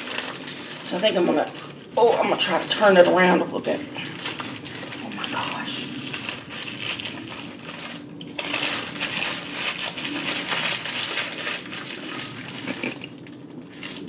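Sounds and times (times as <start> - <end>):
paper wrapper crinkling: 0.0 - 14.0.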